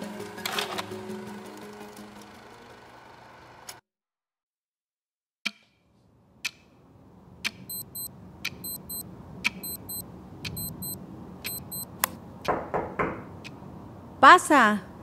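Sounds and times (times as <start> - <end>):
music: 0.0 - 3.0
clock ticking: 7.4 - 11.8
electronic alarm double beeps: 7.7 - 9.0, 9.6 - 11.9.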